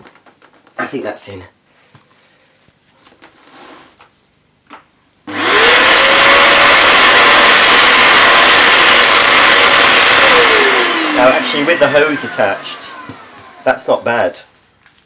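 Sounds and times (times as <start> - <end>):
carpet washer suction motor whine: 5.3 - 14.4.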